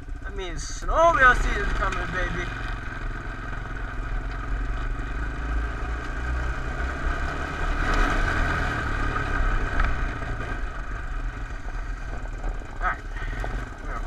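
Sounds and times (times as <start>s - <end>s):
atv engine running: 0.0s - 14.0s.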